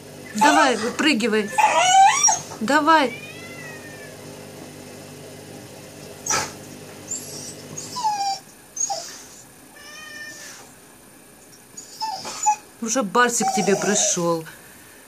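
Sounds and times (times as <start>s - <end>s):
pet whining: 0.2s - 4.4s, 6.0s - 10.8s, 11.4s - 14.4s.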